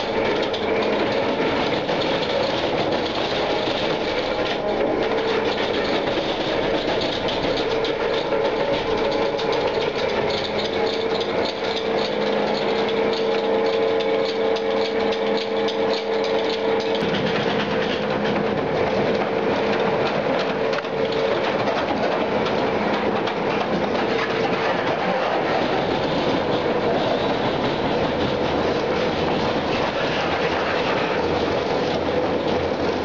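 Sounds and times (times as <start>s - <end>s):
steady motor whine: 18.0s - 33.0s.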